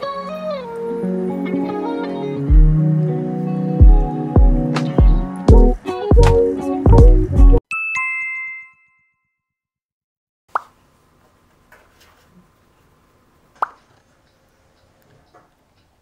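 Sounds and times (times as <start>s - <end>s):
background music: 0.0s - 7.6s.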